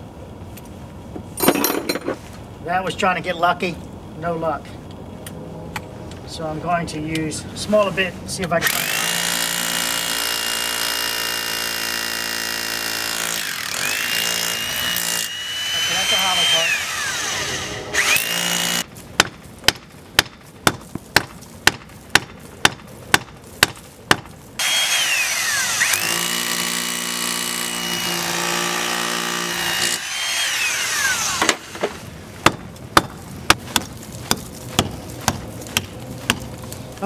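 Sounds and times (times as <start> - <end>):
hammer drill boring into block: 8.6 - 18.8, 24.6 - 32.0.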